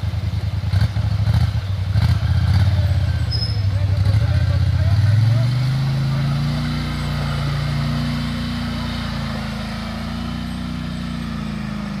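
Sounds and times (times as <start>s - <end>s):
quad bike engine under load: 0.0s - 12.0s.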